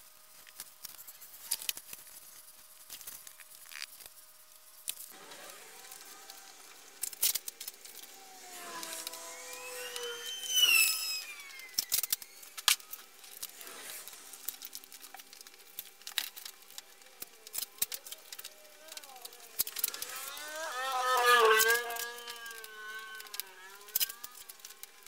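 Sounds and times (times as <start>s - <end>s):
wavering squeak: 5.1s - 15.0s, 16.2s - 25.0s.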